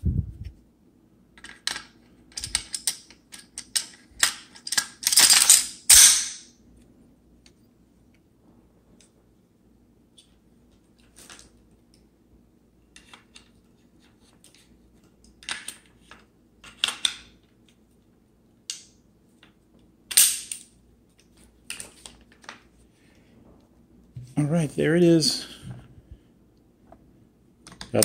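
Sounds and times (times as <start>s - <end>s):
rifle parts clacking: 1.4s - 6.5s.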